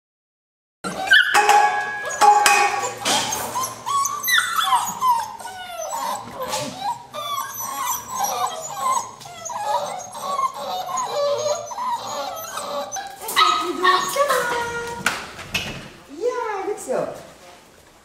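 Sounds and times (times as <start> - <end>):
puppies whining and yipping: 0.8 - 14.9
clicks and knocks: 1.3 - 3.6.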